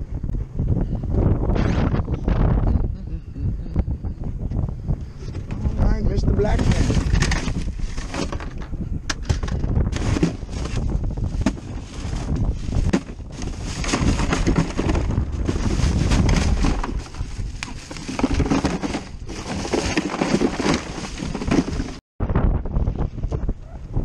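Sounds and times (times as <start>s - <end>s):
wind buffeting microphone: 0.0s - 24.0s
plastic bag rustling: 9.9s - 22.0s
hands handling ice: 10.0s - 22.0s.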